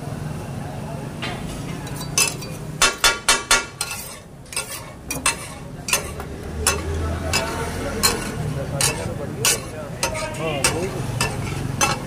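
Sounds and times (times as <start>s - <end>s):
steel spatulas clanging on iron: 1.8s - 12.0s
chicken sizzling: 3.8s - 12.0s.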